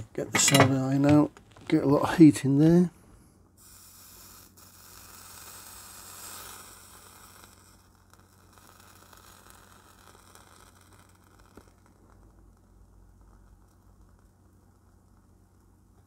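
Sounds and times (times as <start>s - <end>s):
flux sizzling under soldering iron: 3.6s - 16.0s.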